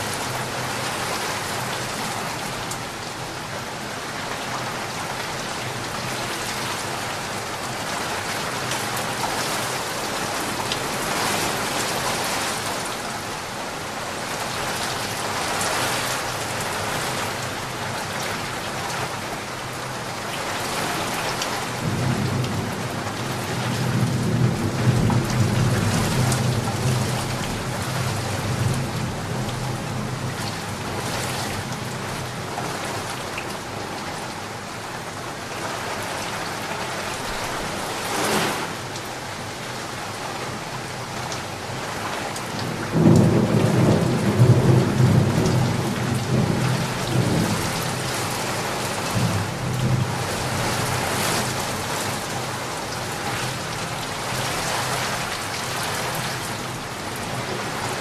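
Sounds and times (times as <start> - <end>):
heavy rain on a flooded street: 0.0 - 58.0.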